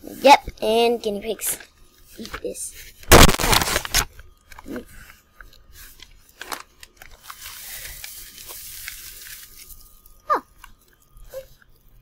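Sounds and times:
hay rustling in plastic bag: 0:05.8 - 0:10.0.

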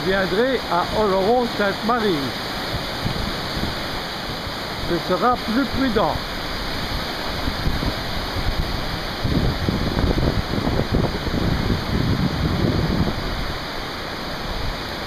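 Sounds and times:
river rushing: 0:00.0 - 0:15.0
wind buffeting microphone: 0:02.3 - 0:05.0, 0:05.9 - 0:15.0.

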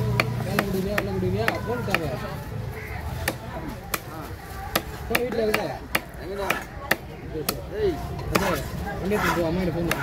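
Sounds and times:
knife chopping on wooden block: 0:00.0 - 0:02.1
faint voices: 0:00.0 - 0:10.0.

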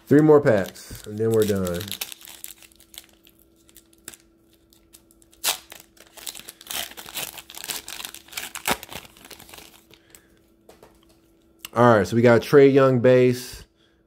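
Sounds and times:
foil wrapper tearing and crinkling: 0:00.4 - 0:10.0.

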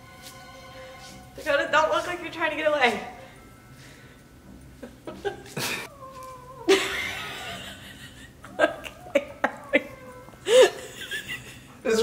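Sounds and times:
cat growling: 0:05.6 - 0:07.3, 0:08.5 - 0:10.5.

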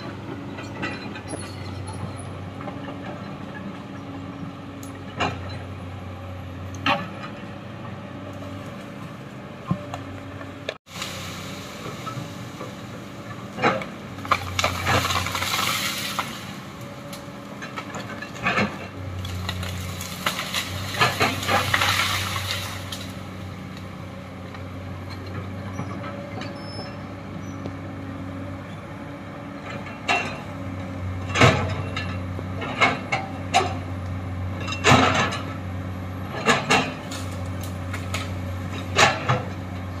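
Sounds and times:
excavator diesel engine running: 0:00.0 - 0:40.0
excavator bucket knocking and clanking: 0:31.2 - 0:33.8.

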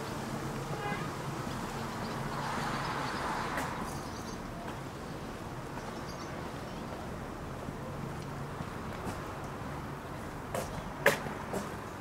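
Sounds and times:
vehicle passing: 0:00.2 - 0:04.5.

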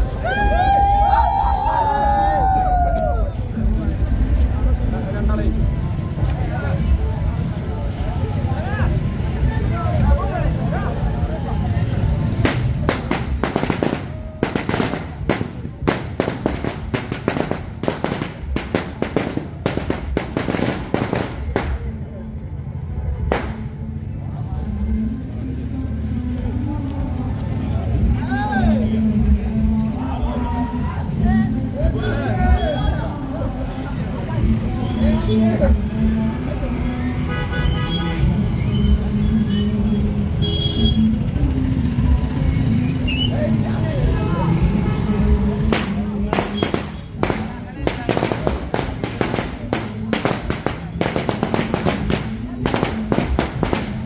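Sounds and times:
rumble of engines and crowd: 0:00.0 - 0:54.0
firecrackers banging: 0:12.3 - 0:22.0, 0:23.2 - 0:23.8, 0:45.2 - 0:54.0.

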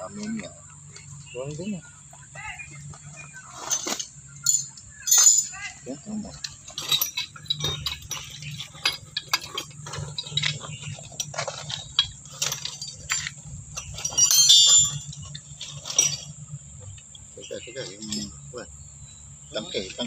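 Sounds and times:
low hum: 0:00.0 - 0:20.0
metal pipe clinking and knocking: 0:03.6 - 0:05.7, 0:06.3 - 0:17.1.

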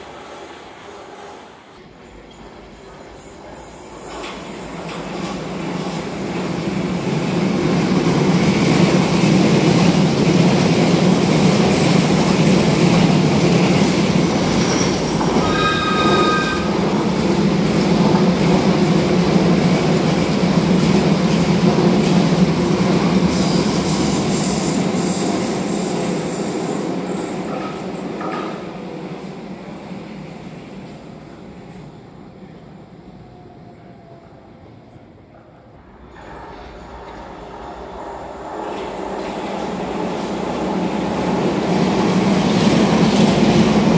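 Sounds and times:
train wheels rumbling on rails: 0:00.0 - 0:34.3, 0:35.8 - 0:43.9
brief high-pitched tone: 0:15.4 - 0:16.8.

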